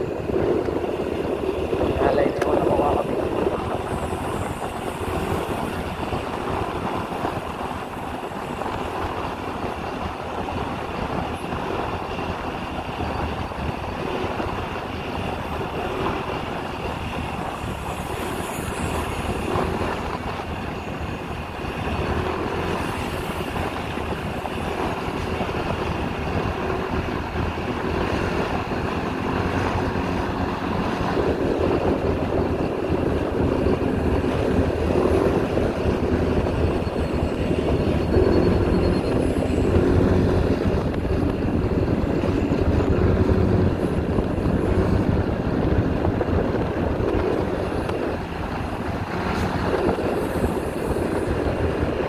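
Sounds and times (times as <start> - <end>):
motorcycle engine running: 0.0 - 52.0
road and wind noise: 0.0 - 52.0.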